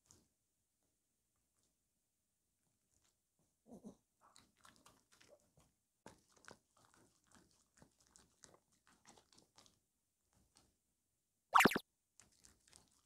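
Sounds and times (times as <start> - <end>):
dog licking and nibbling: 4.4 - 10.7, 12.2 - 13.0.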